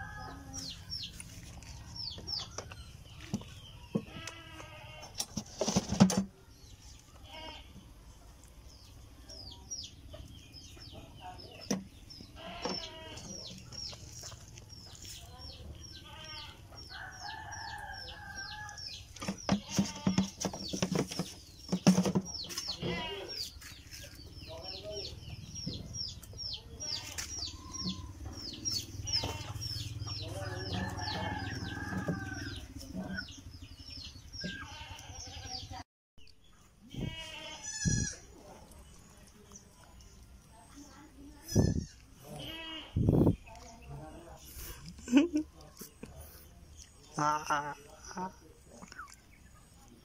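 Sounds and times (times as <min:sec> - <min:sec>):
knocks and scuffling: 0:00.6 - 0:06.4, 0:19.0 - 0:24.2
birds chirping rapidly: 0:08.6 - 0:45.4.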